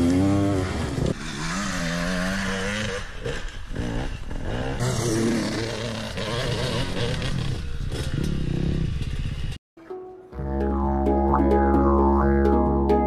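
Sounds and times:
dirt bike engine revving: 0.0s - 9.5s.

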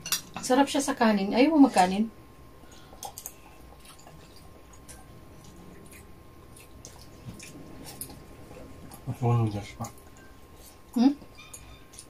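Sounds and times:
noodles being chewed and slurped: 2.9s - 10.9s.

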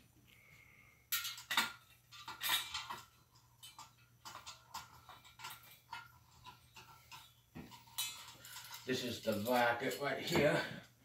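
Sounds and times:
small metal parts clinking: 1.1s - 11.0s.

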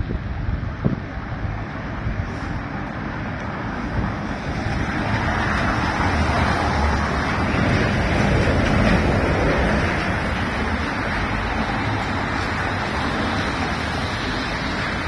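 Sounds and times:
bus engine rumble: 0.0s - 15.0s
wind noise on microphone: 0.0s - 15.0s
tyre hiss on wet road: 2.1s - 3.1s.

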